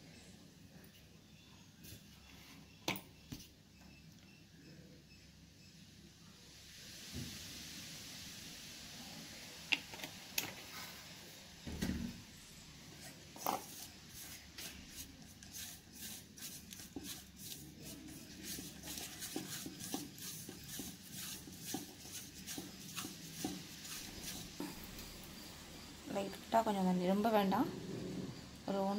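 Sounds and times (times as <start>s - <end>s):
fingers scraping paste in metal pot: 13.4s - 25.2s.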